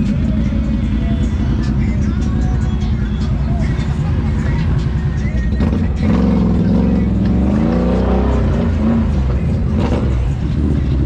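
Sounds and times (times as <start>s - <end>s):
idling engines: 0.0s - 11.0s
off-road vehicle engine revving: 0.0s - 11.0s.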